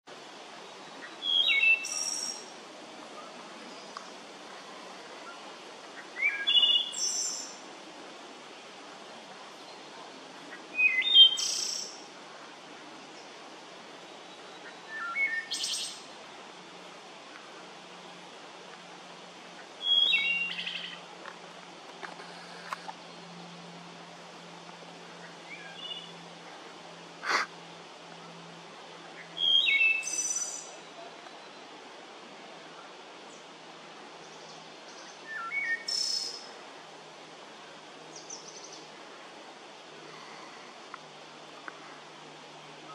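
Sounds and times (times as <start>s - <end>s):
wood thrush singing: 1.0s - 2.5s, 10.7s - 12.0s, 19.8s - 21.0s, 29.2s - 31.6s
breathy rush of noise: 2.4s - 6.4s, 20.4s - 29.3s, 36.4s - 42.9s.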